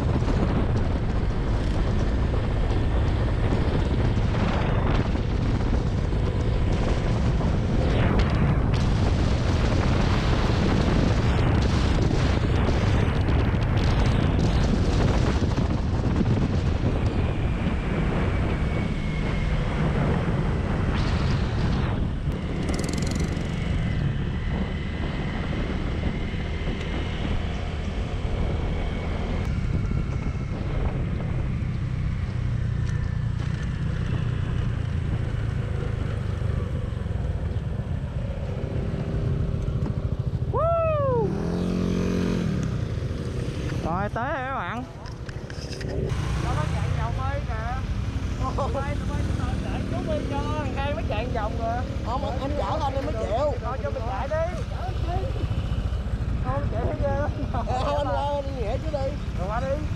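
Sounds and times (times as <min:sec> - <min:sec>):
wind rumble on microphone: 0:00.0 - 0:59.9
motor scooter running: 0:22.2 - 0:40.6, 0:41.2 - 0:59.9.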